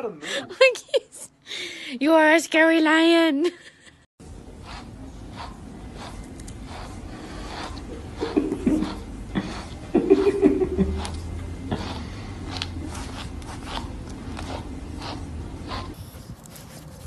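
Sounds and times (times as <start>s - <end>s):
person laughing: 8.2s - 11.2s.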